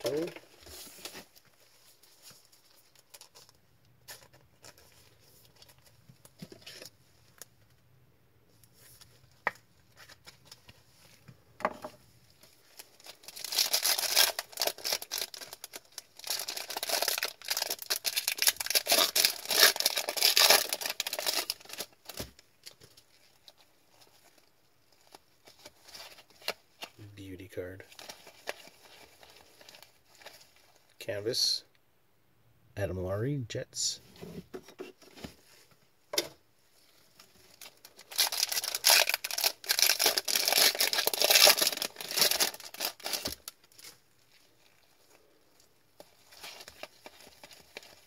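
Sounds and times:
foil wrapper crinkling and tearing: 12.6s - 27.0s, 27.9s - 30.9s, 37.1s - 48.0s.

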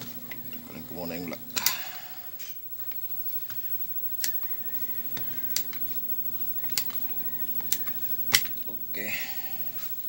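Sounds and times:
low steady hum: 0.0s - 10.0s
pliers clicking on metal: 5.1s - 6.0s, 6.6s - 8.6s.

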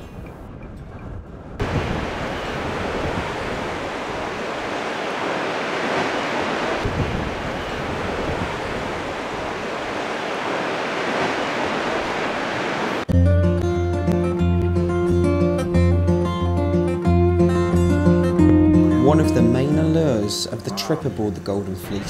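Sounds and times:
surf breaking on rocks: 1.6s - 13.1s.

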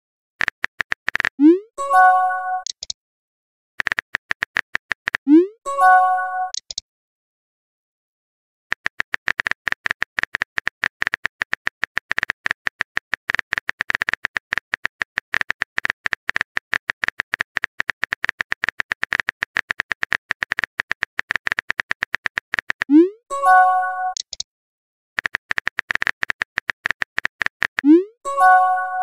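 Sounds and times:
phone keyboard clicks: 0.4s - 1.4s, 2.6s - 3.0s, 3.8s - 5.3s, 6.5s - 6.8s, 8.7s - 22.9s, 24.1s - 24.4s, 25.2s - 27.9s
message sent chime: 1.4s - 2.7s, 5.4s - 6.6s, 23.3s - 24.2s, 28.0s - 29.0s.

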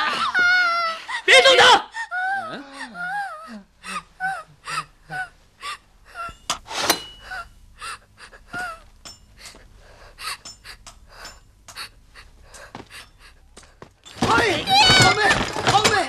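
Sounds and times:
woman sobbing and gasping: 0.0s - 1.3s, 1.9s - 6.4s, 7.2s - 13.9s.

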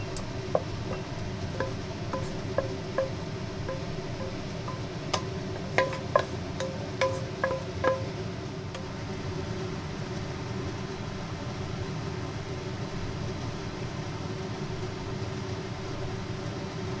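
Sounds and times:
spatula tapping glass bowl: 0.0s - 8.1s
exhaust fan humming: 0.0s - 17.0s.

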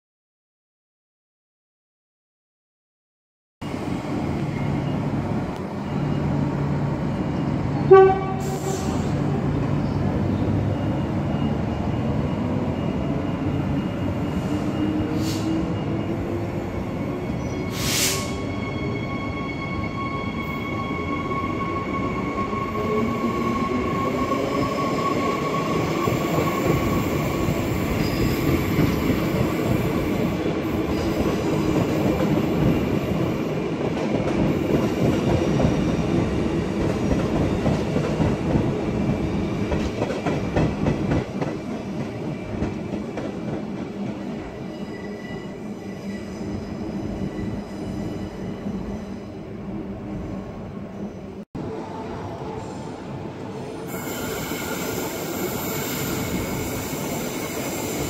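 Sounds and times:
train rail noise: 3.6s - 58.0s
train horn toot: 7.8s - 9.1s.

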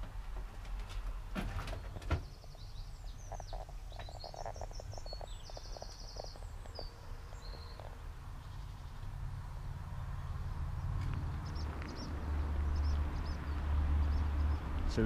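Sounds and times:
small birds chirping: 1.0s - 15.0s.

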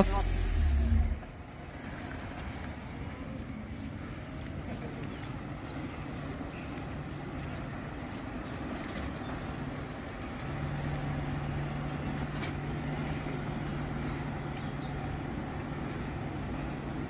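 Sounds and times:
car engine running: 0.0s - 1.4s
street noise: 0.0s - 17.0s.

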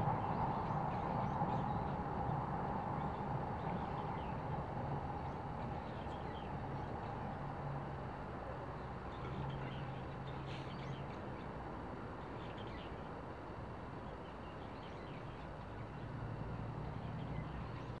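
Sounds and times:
faint bird chirps: 8.8s - 13.2s.

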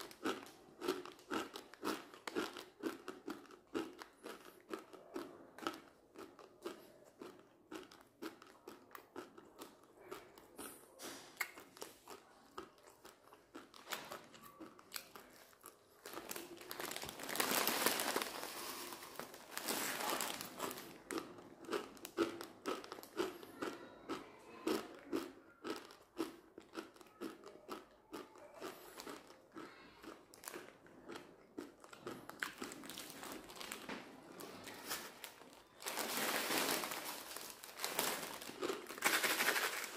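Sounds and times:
crunching dry noodles: 0.0s - 39.9s
plastic wrapper crinkling: 15.3s - 21.0s, 32.6s - 39.9s.

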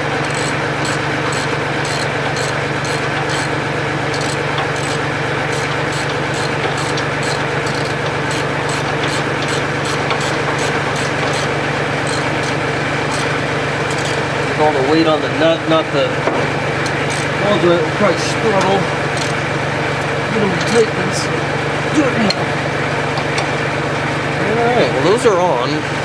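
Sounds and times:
engine idling: 0.0s - 26.0s
light regular ticking: 0.1s - 14.3s, 16.8s - 17.4s, 18.6s - 20.8s.

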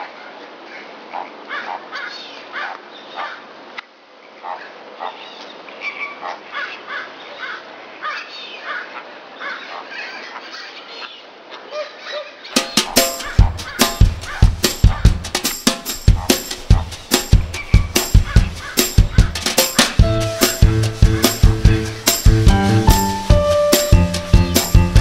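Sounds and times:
harsh animal calls: 11.7s - 15.3s, 16.1s - 22.9s.

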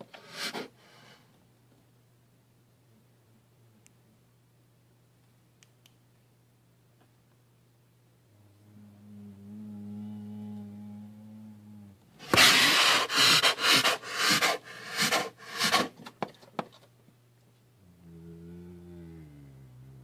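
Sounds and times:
low steady hum: 0.0s - 20.0s
bear huffing and panting: 12.2s - 16.1s.

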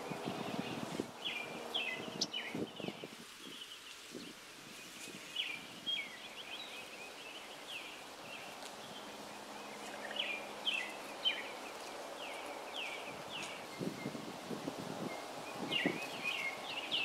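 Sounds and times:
songbird chirping: 0.0s - 14.4s, 15.0s - 17.0s.

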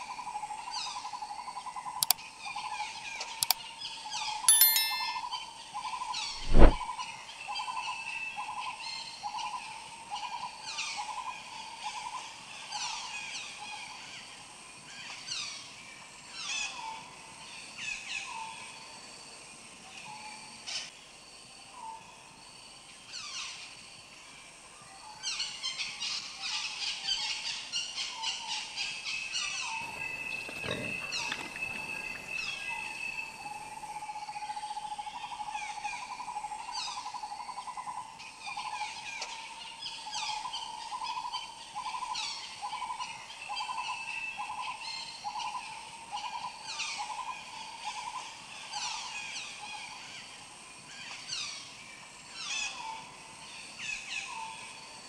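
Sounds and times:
bird pulsing trill: 4.5s - 5.4s
birds calling: 29.6s - 33.3s.

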